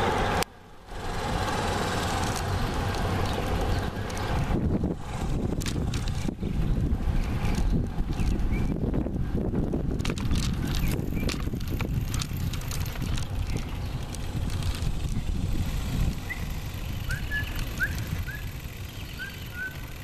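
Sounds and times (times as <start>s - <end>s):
wind rumbling on microphone: 0.0s - 20.0s
sharp rattling clicks: 10.0s - 15.4s.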